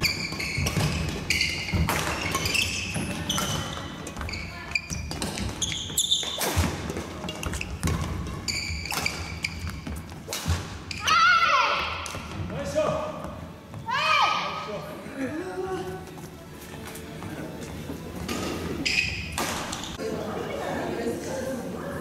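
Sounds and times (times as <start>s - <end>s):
shoes squeaking on gym floor: 0.0s - 11.3s, 16.2s - 20.0s
rackets hitting shuttlecock: 0.2s - 4.3s, 5.0s - 10.9s.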